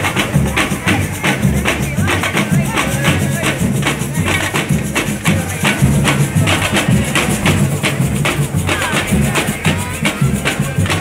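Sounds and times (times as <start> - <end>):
samba drums: 0.0 - 11.0
shakers: 0.0 - 11.0.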